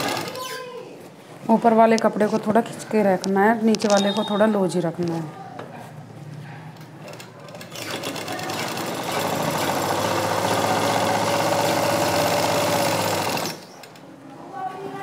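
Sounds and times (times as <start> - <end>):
sewing machine stitching: 0.0 - 0.4, 7.0 - 13.6.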